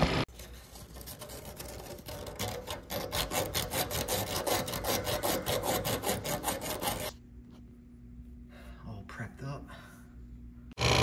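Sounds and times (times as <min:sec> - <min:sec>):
sand cloth scraping copper tubes: 0:00.3 - 0:07.2.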